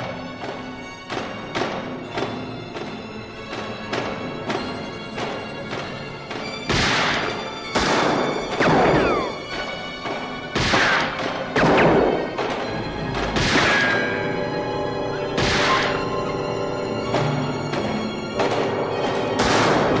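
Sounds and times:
orchestral film score: 0.0s - 20.0s
heavy echoing gunshots: 6.7s - 9.7s, 10.4s - 12.7s, 13.3s - 14.5s, 15.1s - 16.4s, 18.4s - 20.0s.

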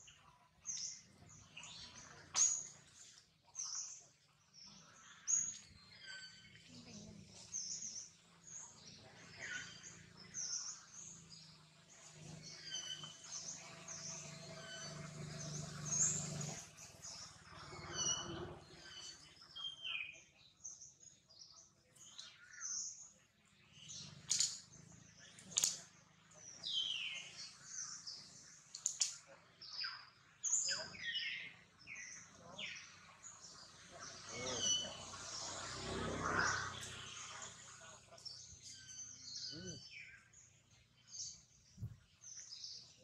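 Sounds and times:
sharp clicks: 24.3s - 24.6s, 25.4s - 25.9s, 28.7s - 29.2s.

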